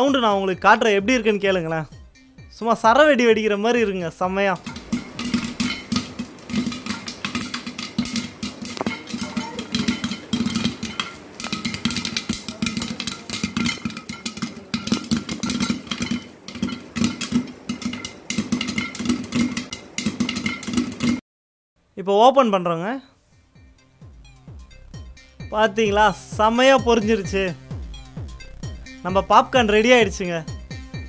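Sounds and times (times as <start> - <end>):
popcorn popping in metal pot: 3.6 - 21.2.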